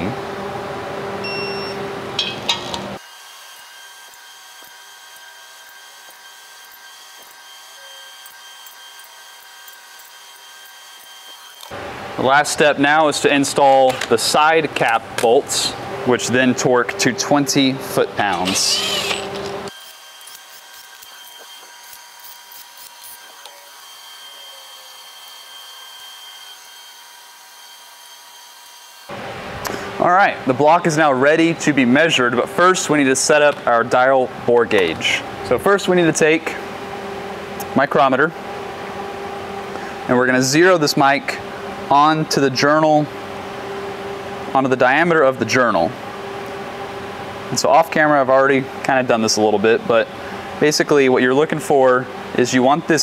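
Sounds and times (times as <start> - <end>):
faint workshop hum: 0.0 - 53.0
short beeps: 1.2 - 1.8.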